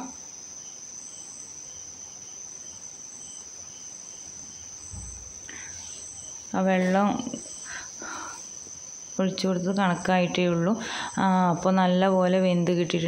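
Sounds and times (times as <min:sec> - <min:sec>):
crickets chirping: 0:00.0 - 0:13.0
soft low thump: 0:04.9 - 0:05.5.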